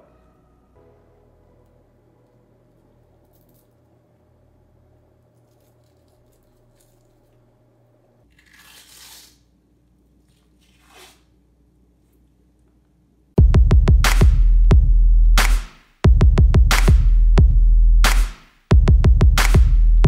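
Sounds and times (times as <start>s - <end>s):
loud music with heavy drum beat: 13.4s - 20.0s.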